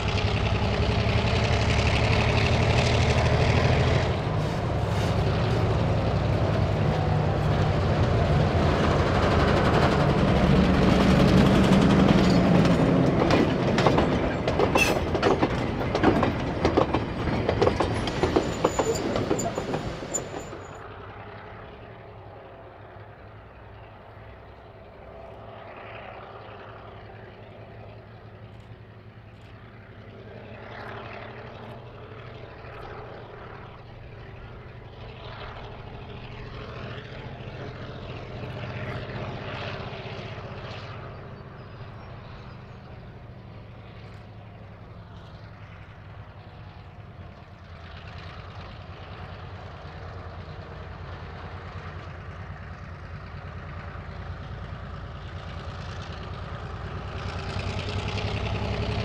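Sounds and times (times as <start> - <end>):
wheels clacking over rail joints: 0.0 - 20.8
diesel locomotive engine running: 0.0 - 59.0
distant train engine: 0.0 - 59.0.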